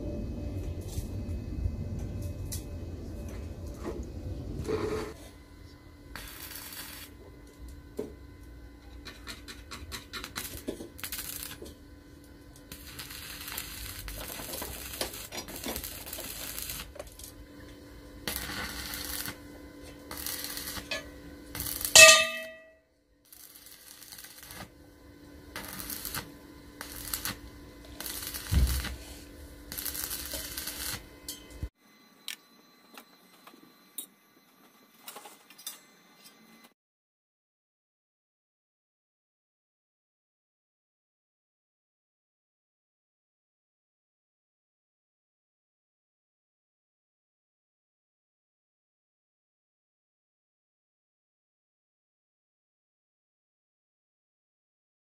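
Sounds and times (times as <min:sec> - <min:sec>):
steady low hum: 0:00.0 - 0:35.0
arc welding crackling: 0:04.6 - 0:31.7
sharp metallic clang: 0:22.0 - 0:22.8.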